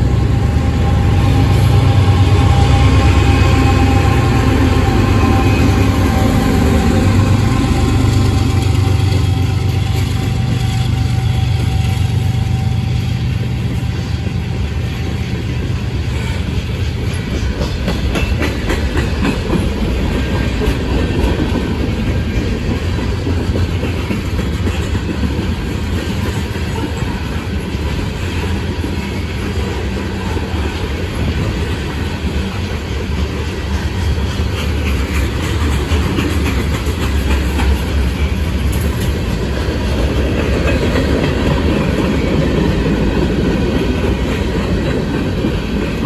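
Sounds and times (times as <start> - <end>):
diesel locomotive engine drone: 0.0 - 46.0
train wheels rumbling on rails: 0.0 - 46.0
wheels clicking over rail joints: 13.5 - 46.0.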